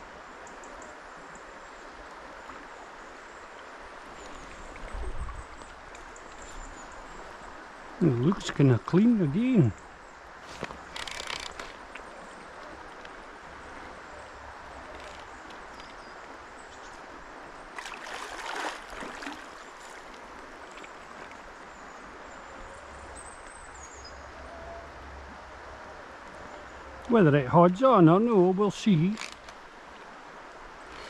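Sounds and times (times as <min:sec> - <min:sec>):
fast-flowing river rushing: 0:17.1 - 0:21.5.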